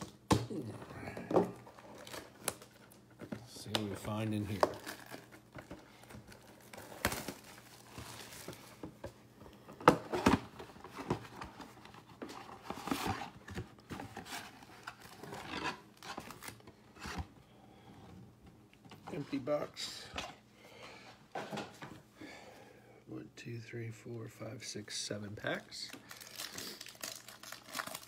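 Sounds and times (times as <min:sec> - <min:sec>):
cellophane crinkling and tearing: 0:01.5 - 0:08.8, 0:10.6 - 0:17.1, 0:25.5 - 0:28.0.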